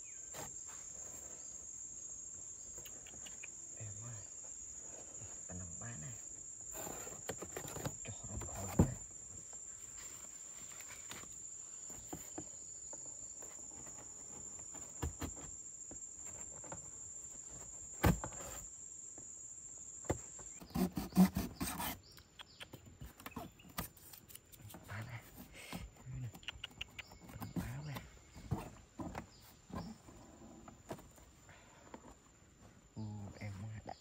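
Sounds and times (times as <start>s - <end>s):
insect droning: 0.0s - 34.0s
cardboard box knocks and rustling: 17.9s - 18.7s.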